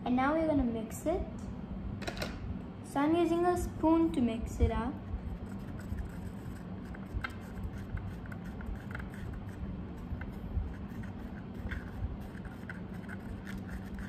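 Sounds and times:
steady low hum: 0.0 - 14.0
spoon scraping plastic palette: 5.5 - 14.0.

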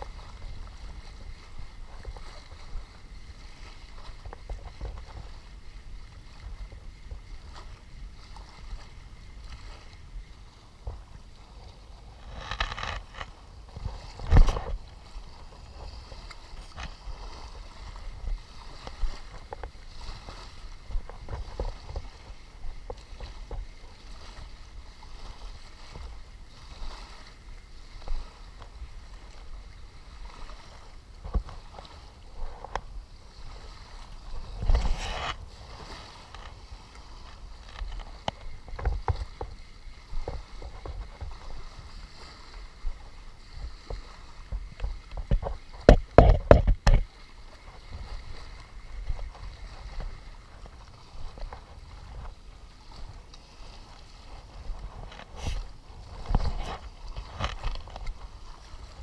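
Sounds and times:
water lapping at shoreline: 0.0 - 59.0
muffled thumps and knocks: 44.5 - 47.1.

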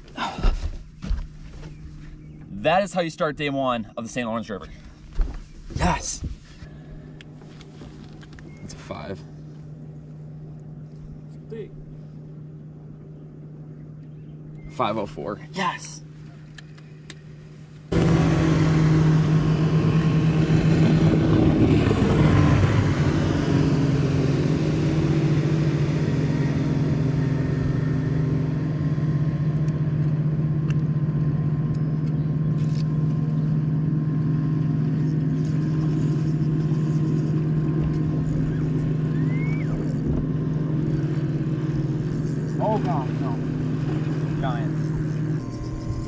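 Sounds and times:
boat motor humming: 0.0 - 46.0
wash of noise: 17.9 - 29.1.

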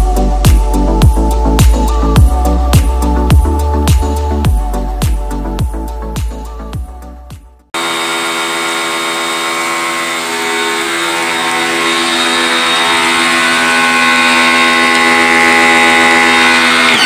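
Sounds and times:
pressure washer motor humming: 7.8 - 17.0.

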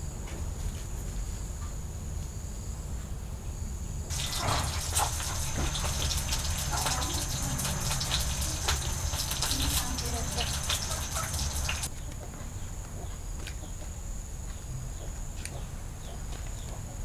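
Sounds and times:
high drone of insects: 0.0 - 17.0
water splashing and pouring: 4.1 - 11.9.

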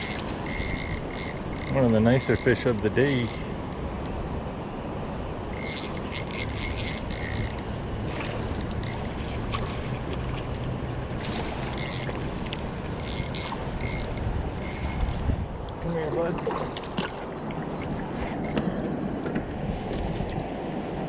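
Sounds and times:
fishing reel ratcheting: 0.0 - 3.8, 5.5 - 9.2, 11.4 - 12.1, 13.0 - 15.2
river current rushing: 0.0 - 19.8.

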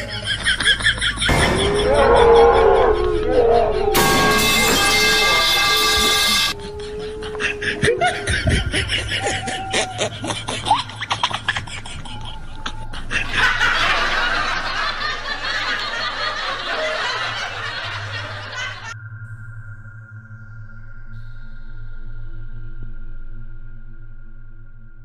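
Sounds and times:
loud laughter: 0.0 - 19.0
cries: 1.4 - 4.3, 6.6 - 10.8
held musical tones: 2.6 - 8.8.

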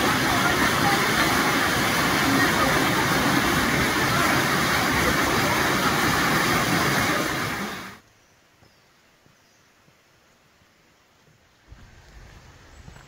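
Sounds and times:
loud steady rushing noise: 0.0 - 8.0.

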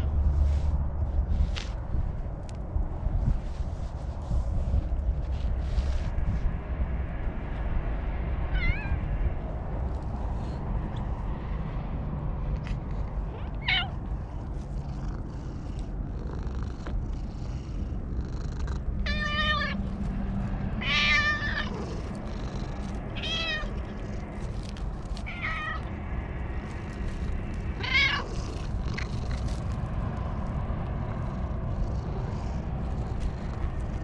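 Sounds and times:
cat meowing: 8.5 - 9.1, 13.4 - 14.0, 19.0 - 19.8, 20.8 - 21.8, 23.2 - 24.1, 25.2 - 25.9, 27.8 - 28.5.

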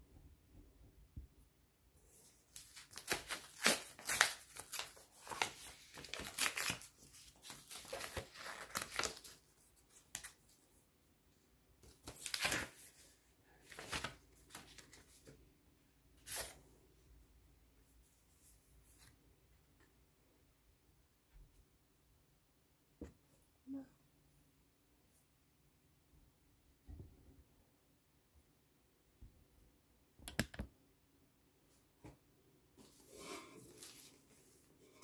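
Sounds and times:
tissue paper rustling: 2.2 - 10.6, 11.9 - 15.3, 32.8 - 35.0.

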